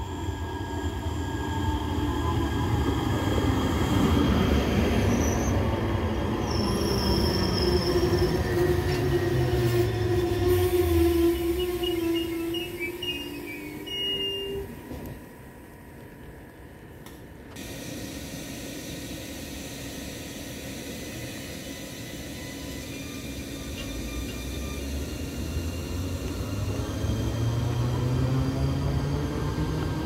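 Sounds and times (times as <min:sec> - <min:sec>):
wheels rumbling on rail: 0:00.0 - 0:15.4, 0:22.4 - 0:30.0
electric train hum: 0:00.0 - 0:30.0
rising motor whine: 0:21.5 - 0:30.0.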